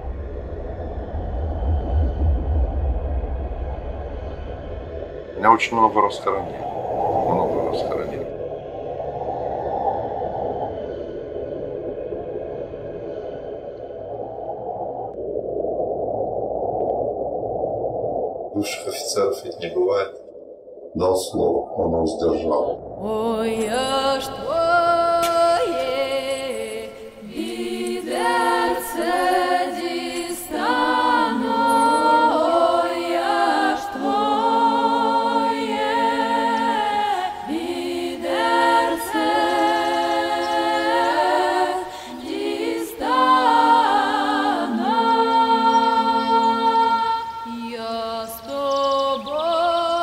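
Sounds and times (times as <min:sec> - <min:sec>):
choir singing in harmony: 0:23.0 - 0:50.0.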